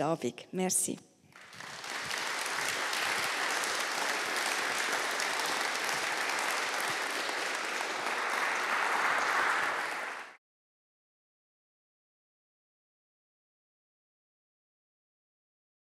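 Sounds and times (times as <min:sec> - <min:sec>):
audience applauding: 0:01.3 - 0:10.4.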